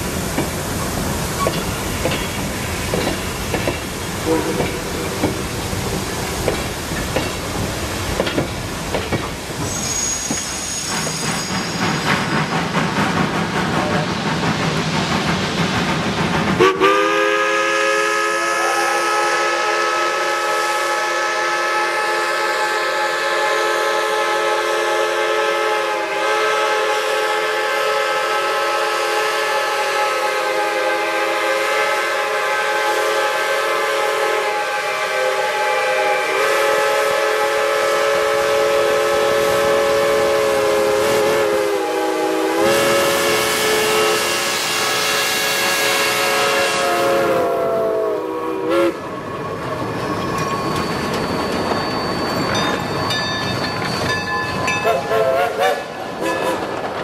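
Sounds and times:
steam hiss: 0:00.0 - 0:53.1
steam whistles chord: 0:16.6 - 0:49.6.

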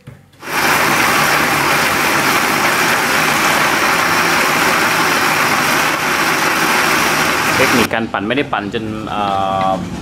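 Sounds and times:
electric blender running: 0:00.4 - 0:07.9.

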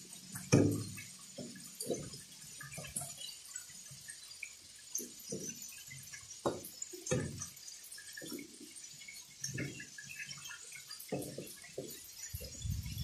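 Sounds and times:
water sloshing and plopping: 0:00.4 - 0:03.8, 0:05.1 - 0:13.0.

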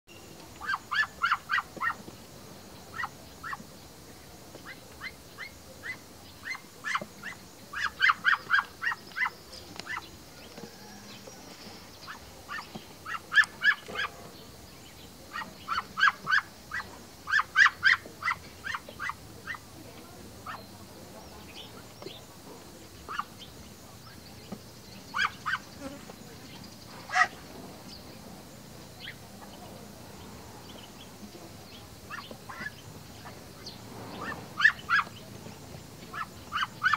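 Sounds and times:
ducks quacking: 0:25.1 - 0:25.6, 0:27.0 - 0:27.4, 0:32.1 - 0:33.4, 0:34.0 - 0:35.2, 0:36.1 - 0:36.9.

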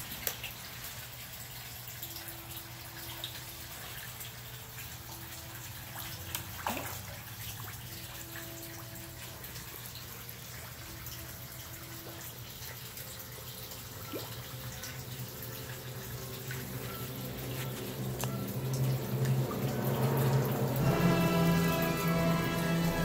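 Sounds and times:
fish feeding splashes: 0:00.0 - 0:23.0
water trickling: 0:00.0 - 0:23.0
low hum: 0:14.0 - 0:23.0.

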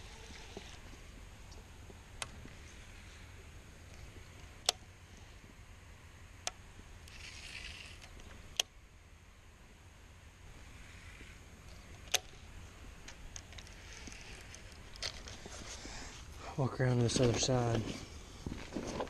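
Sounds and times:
soft rustle: 0:00.0 - 0:05.6, 0:10.6 - 0:19.0
fishing reel clicks: 0:07.1 - 0:08.7.

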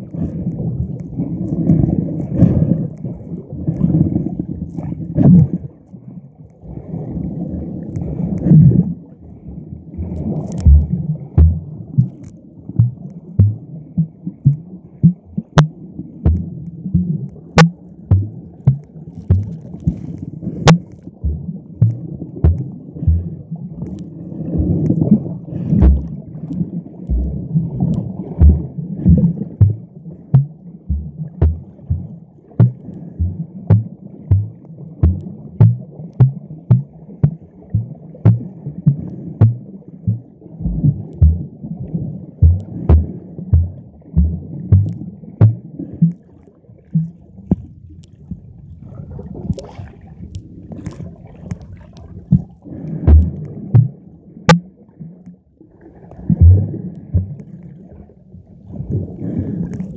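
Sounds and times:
water churning underwater: 0:00.0 - 0:59.9
low thumps: 0:10.6 - 0:13.7, 0:14.4 - 0:20.0, 0:20.6 - 0:23.4, 0:24.6 - 0:26.2, 0:27.1 - 0:41.5, 0:42.4 - 0:46.2, 0:52.3 - 0:54.6, 0:56.3 - 0:57.5.

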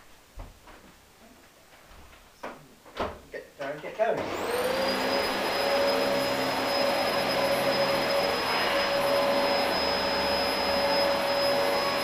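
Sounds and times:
vacuum cleaner running: 0:04.2 - 0:12.0.

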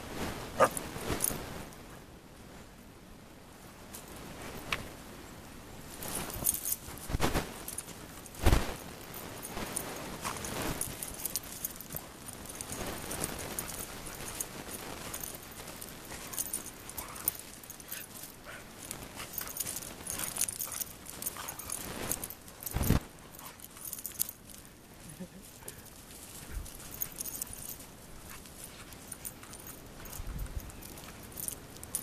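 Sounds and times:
paws crunching in snow: 0:00.2 - 0:01.7, 0:05.9 - 0:32.0
light metallic jingling: 0:05.9 - 0:32.0.

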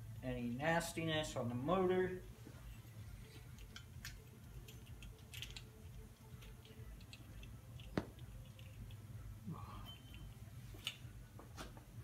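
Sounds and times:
small metal clicks: 0:03.3 - 0:09.1.

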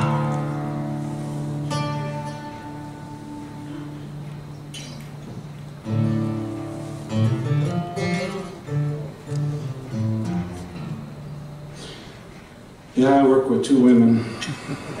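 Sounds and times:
acoustic guitars playing: 0:00.0 - 0:15.0.

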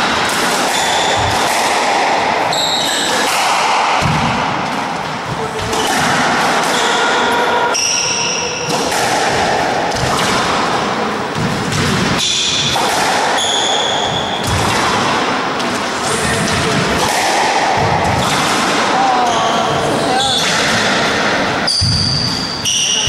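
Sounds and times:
squash ball thudding: 0:00.0 - 0:19.8, 0:20.4 - 0:22.6
background noise: 0:00.0 - 0:23.0.

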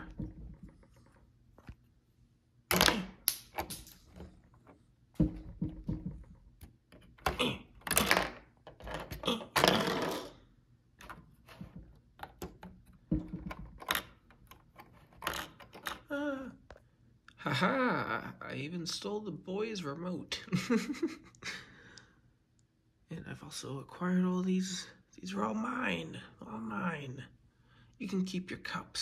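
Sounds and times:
plastic bricks clicking: 0:02.7 - 0:04.4, 0:11.0 - 0:16.1.

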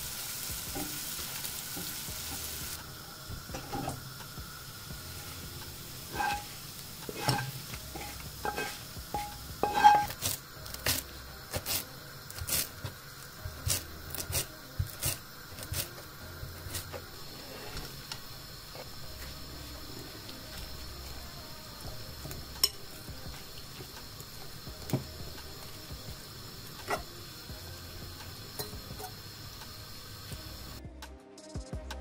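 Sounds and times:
utensil scraping a frying pan: 0:06.0 - 0:12.9, 0:16.6 - 0:18.0.

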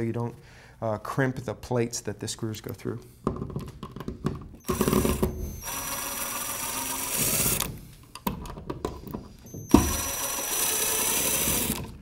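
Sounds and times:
cordless drill running: 0:04.6 - 0:07.8, 0:09.5 - 0:11.9.

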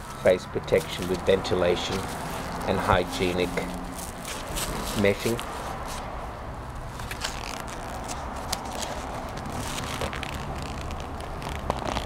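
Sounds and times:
steady background hum: 0:00.0 - 0:10.9
leather mitt rustles and taps: 0:08.0 - 0:12.0.

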